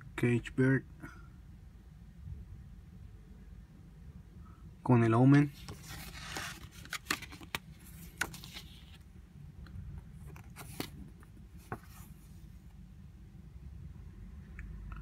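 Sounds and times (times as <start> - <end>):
booklet pages rustling: 5.4 - 9.1, 10.2 - 12.6
paper crinkles and clicks: 5.7 - 9.0.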